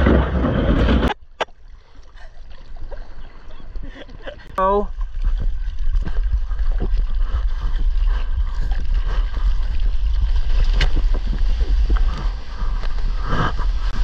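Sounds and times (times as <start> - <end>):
water sloshing against surfboard: 0.0 - 14.0
wind rumbling on microphone: 3.6 - 14.0.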